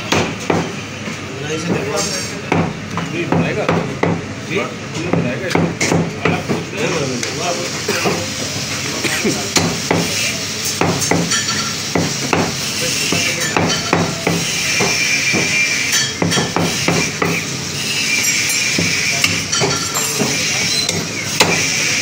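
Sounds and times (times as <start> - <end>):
cleaver chopping meat and bone: 0.0 - 0.8, 1.6 - 4.3, 5.0 - 6.7, 9.5 - 10.2, 10.8 - 11.3, 11.9 - 15.6, 16.2 - 17.5, 18.8 - 21.7.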